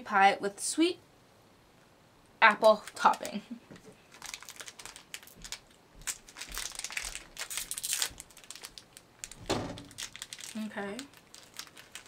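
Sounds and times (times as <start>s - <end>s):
snack wrapper crinkling: 2.6s - 3.4s, 4.0s - 12.0s.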